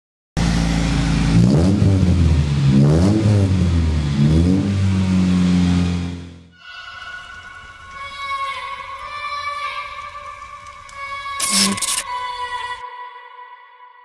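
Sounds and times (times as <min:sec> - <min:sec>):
car engine idling and revving: 0:00.4 - 0:06.5.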